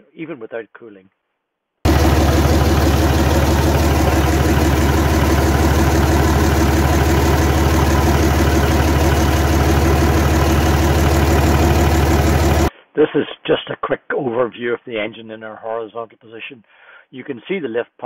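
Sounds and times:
diesel engine idling: 0:01.9 - 0:12.7.

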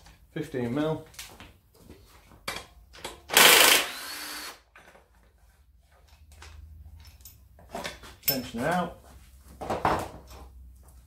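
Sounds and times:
cordless power tool running: 0:03.3 - 0:04.6.

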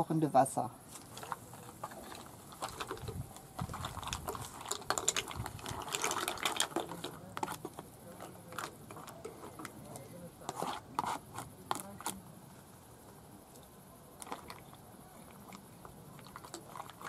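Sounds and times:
mussel shells clattering: 0:01.0 - 0:09.8, 0:14.2 - 0:17.0.

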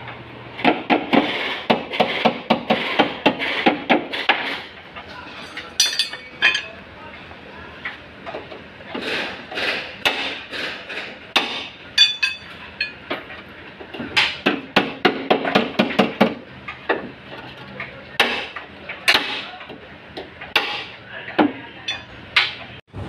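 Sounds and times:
hammer striking steel bar: 0:09.5 - 0:13.0, 0:18.2 - 0:19.5, 0:20.5 - 0:22.6
sharp metallic clinks: 0:12.0 - 0:13.0.

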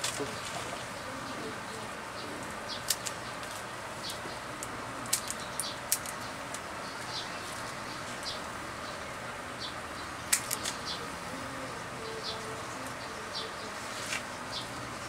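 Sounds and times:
pruners snipping twigs: 0:02.7 - 0:06.7, 0:10.3 - 0:11.0.

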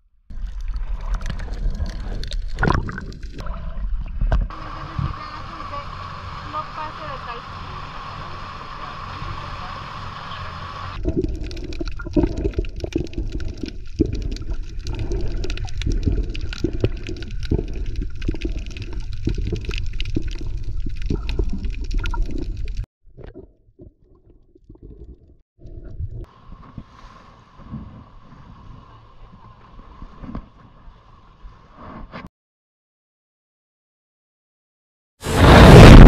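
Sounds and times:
muffled underwater rushing: 0:00.3 - 0:31.7, 0:35.2 - 0:36.0
small crackles and clicks: 0:00.4 - 0:03.4, 0:11.0 - 0:22.9.

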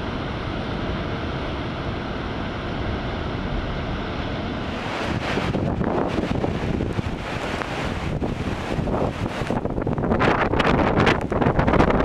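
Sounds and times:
wind buffeting microphone: 0:00.0 - 0:12.0
surf breaking on rocks: 0:04.5 - 0:12.0.

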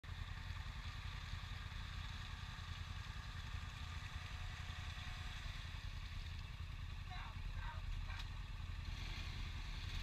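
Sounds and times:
atv engines idling: 0:00.0 - 0:10.0.

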